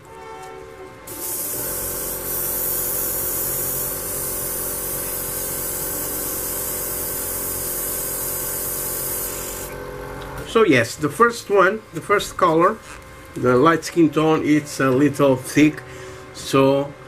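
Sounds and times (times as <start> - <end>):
steady hum: 0.0 - 17.0
airbrush hiss: 1.1 - 9.8.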